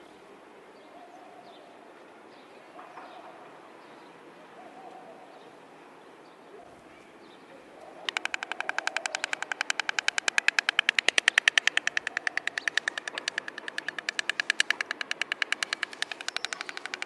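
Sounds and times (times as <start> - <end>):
stork bill clattering: 8.1 - 17.0.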